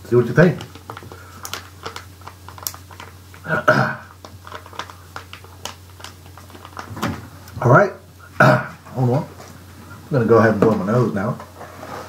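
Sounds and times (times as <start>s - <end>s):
plastic snack packet crinkling: 0.0s - 7.7s.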